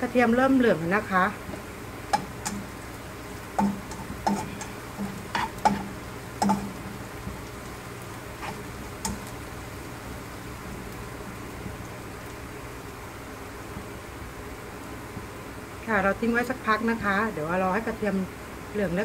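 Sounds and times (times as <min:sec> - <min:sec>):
oil sizzling: 0:00.0 - 0:19.0
spatula scraping a pan: 0:03.5 - 0:07.0, 0:08.4 - 0:09.3.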